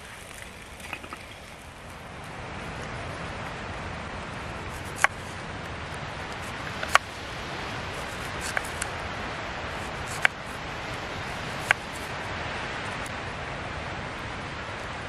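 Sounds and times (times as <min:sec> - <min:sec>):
steady hiss: 0:00.0 - 0:15.0
knife slicing onion: 0:08.0 - 0:08.8, 0:09.8 - 0:10.4.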